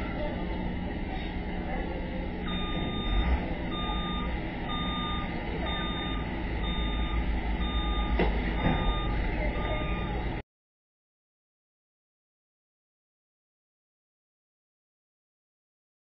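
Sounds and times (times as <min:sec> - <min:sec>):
engine rumble: 0:00.0 - 0:10.4
reversing alarm beeping: 0:02.5 - 0:10.4.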